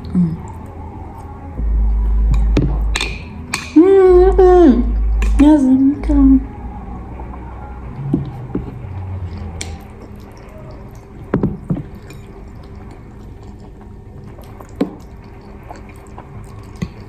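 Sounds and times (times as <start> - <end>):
faint steady hum: 0.0 - 17.0
wet eating sounds: 7.3 - 17.0.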